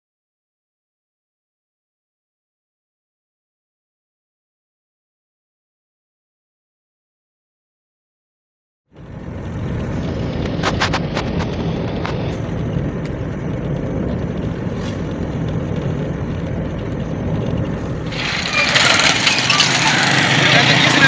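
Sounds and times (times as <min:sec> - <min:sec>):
car road and wind rumble: 0:08.9 - 0:21.0.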